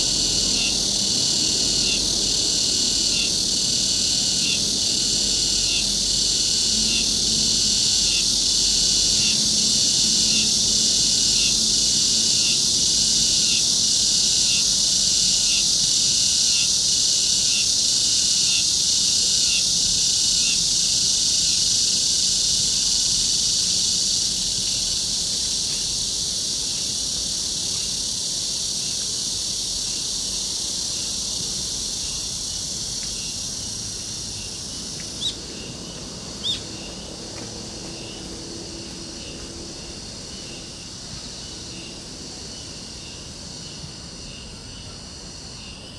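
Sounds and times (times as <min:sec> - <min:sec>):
cicadas shrilling: 0:00.0 - 0:45.9.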